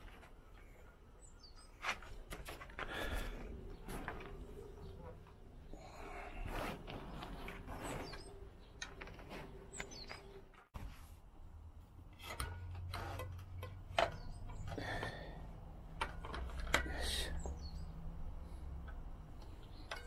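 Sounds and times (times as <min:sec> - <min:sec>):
small birds chirping: 0:00.4 - 0:10.7, 0:13.6 - 0:20.0
tool clicks and knocks on bike: 0:12.1 - 0:15.3, 0:15.9 - 0:17.6, 0:18.8 - 0:20.0.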